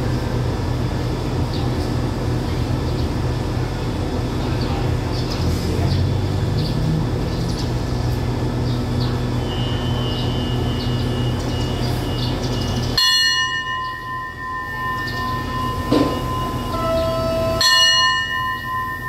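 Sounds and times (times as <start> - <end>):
diesel locomotive idling: 0.0 - 19.0
loud bell-like ringing: 13.0 - 19.0.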